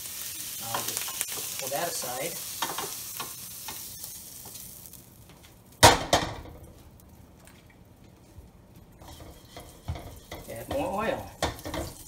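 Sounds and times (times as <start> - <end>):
frying sizzle: 0.0 - 12.0
metal clanks of wok and spatula: 0.6 - 1.6, 9.0 - 12.0.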